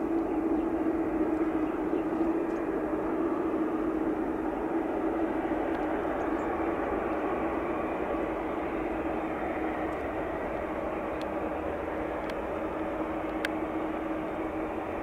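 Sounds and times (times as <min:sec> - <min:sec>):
jet engines running: 0:00.0 - 0:15.0
faint clicks: 0:13.2 - 0:13.6.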